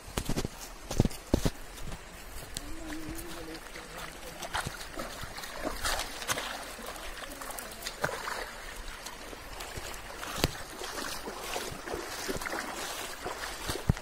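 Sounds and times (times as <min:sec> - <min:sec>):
river flowing: 0:00.0 - 0:14.0
sharp splashes in water: 0:02.9 - 0:14.0.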